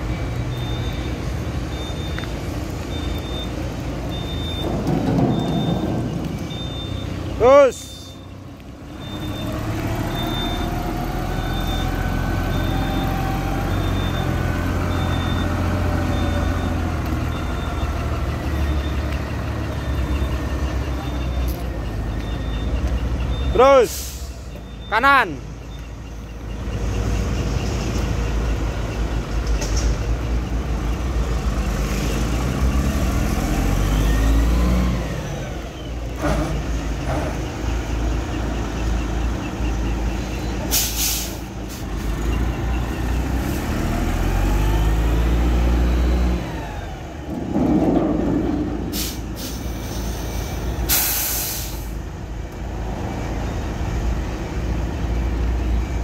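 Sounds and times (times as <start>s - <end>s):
air brakes hissing: 23.8s - 24.5s, 40.6s - 42.1s, 48.8s - 52.0s
heavy diesel engine revving: 30.7s - 52.0s.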